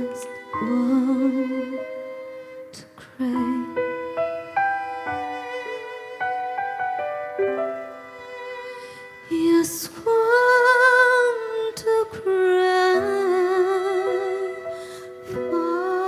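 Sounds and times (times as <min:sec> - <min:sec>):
piano: 0:00.0 - 0:16.0
violin: 0:00.0 - 0:16.0
woman singing with vibrato: 0:03.2 - 0:03.8, 0:09.3 - 0:14.6.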